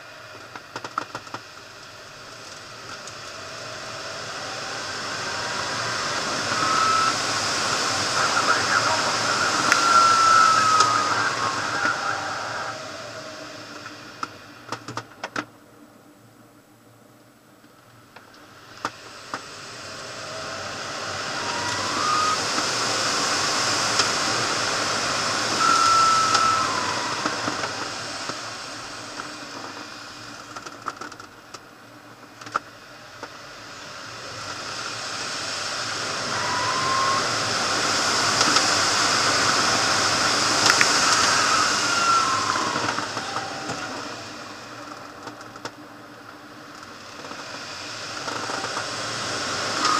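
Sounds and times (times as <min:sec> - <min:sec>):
air rushing over glider canopy: 0:01.5 - 0:14.6, 0:18.6 - 0:30.5, 0:33.7 - 0:44.9
short whistling tones: 0:02.9 - 0:13.6, 0:20.2 - 0:29.2, 0:36.1 - 0:44.8, 0:49.7 - 0:49.9.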